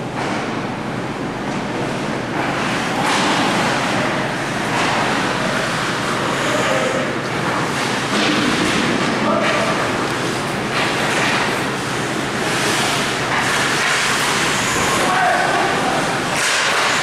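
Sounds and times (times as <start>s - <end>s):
crowd and rink noise: 0.0s - 17.0s
faint distant shouts: 15.0s - 16.2s.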